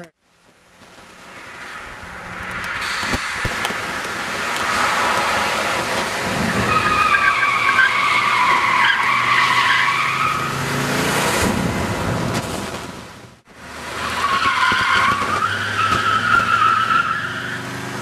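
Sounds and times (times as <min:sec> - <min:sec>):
car engine under load: 0:00.2 - 0:18.0
tyres squealing: 0:03.9 - 0:10.6, 0:14.0 - 0:17.7.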